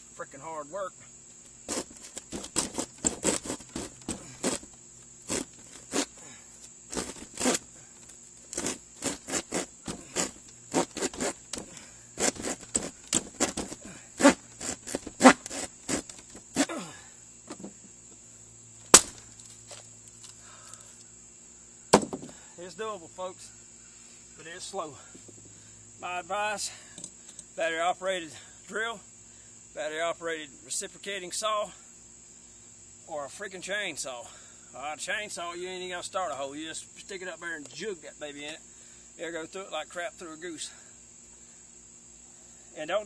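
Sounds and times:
crickets chirring: 0:00.0 - 0:43.0
hand saw cutting plywood: 0:01.7 - 0:06.1, 0:06.9 - 0:07.7, 0:08.5 - 0:11.6, 0:12.2 - 0:16.7.

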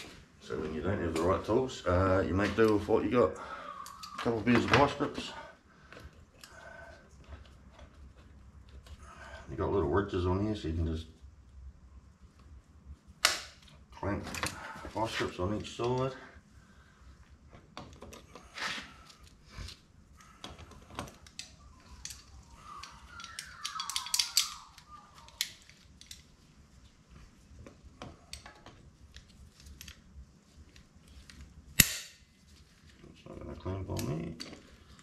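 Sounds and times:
locking pliers snapping shut: 0:22.8 - 0:26.2.

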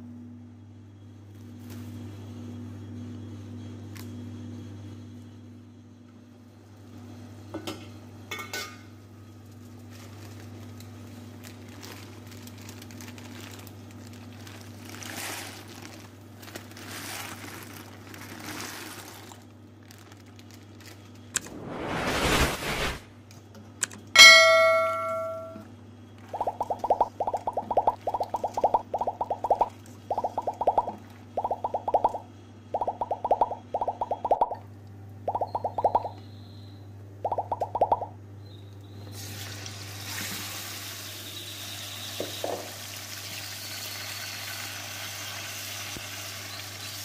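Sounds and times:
water boiling in a pot: 0:09.4 - 0:21.2, 0:26.3 - 0:32.2, 0:32.8 - 0:34.6, 0:35.3 - 0:36.1, 0:39.0 - 0:47.0
loud rush of noise: 0:21.4 - 0:23.1
steady low hum: 0:24.1 - 0:39.0
metal pot clanging and ringing: 0:24.2 - 0:25.6.

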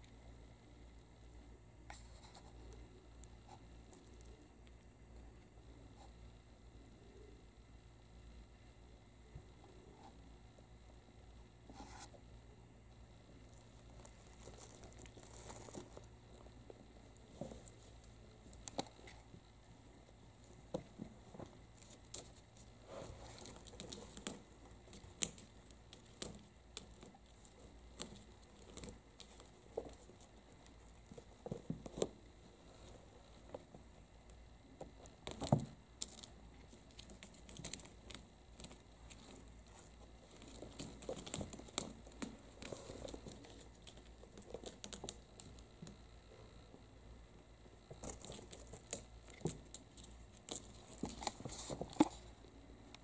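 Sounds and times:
kittens scratching and rustling: 0:11.6 - 0:12.3, 0:13.1 - 0:46.2, 0:47.6 - 0:53.0.

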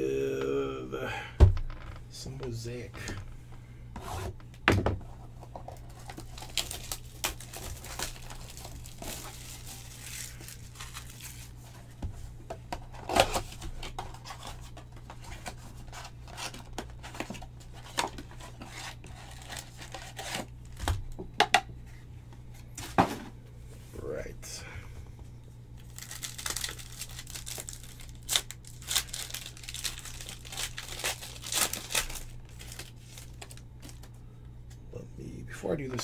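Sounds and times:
wrapping tearing and crinkling: 0:05.6 - 0:11.8, 0:12.9 - 0:20.8, 0:25.8 - 0:34.1.

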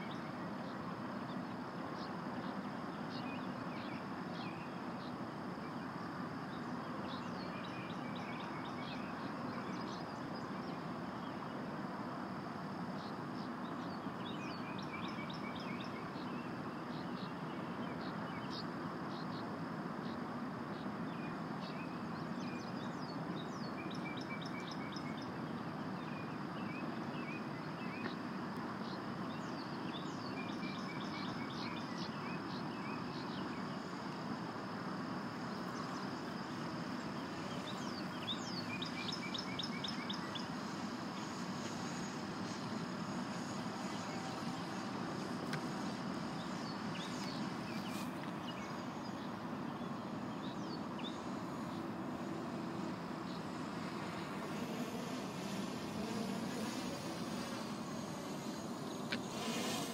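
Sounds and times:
outdoor background noise: 0:00.0 - 0:59.9
small birds chirping: 0:35.0 - 0:59.9.

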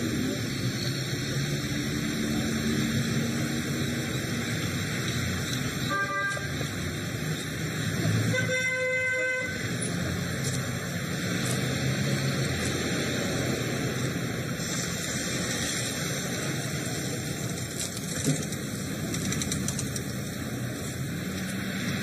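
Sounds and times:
street traffic: 0:00.0 - 0:22.0
car horn honking: 0:05.8 - 0:06.6, 0:08.3 - 0:09.7.

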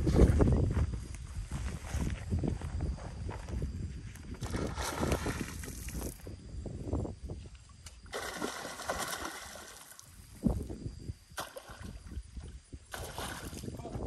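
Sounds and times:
fish splashing at water surface: 0:08.1 - 0:10.1, 0:12.9 - 0:13.7.

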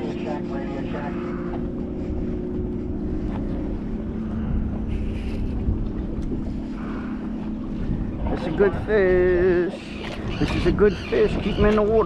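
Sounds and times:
motor hum: 0:00.0 - 0:12.0
wind buffeting microphone: 0:00.0 - 0:12.0.

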